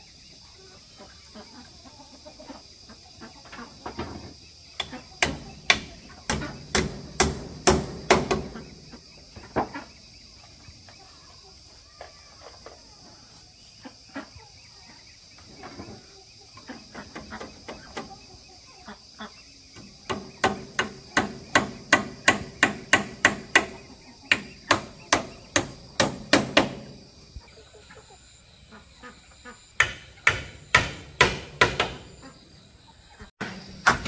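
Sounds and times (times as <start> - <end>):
hammer driving nails into wood: 4.8 - 8.5, 20.1 - 23.7, 29.8 - 32.1.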